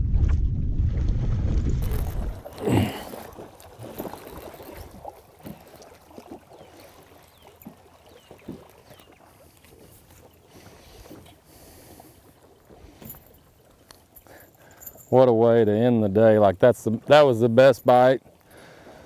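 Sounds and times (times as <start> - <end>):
water sloshing: 1.5 - 19.0
fish splashing at surface: 1.8 - 9.6.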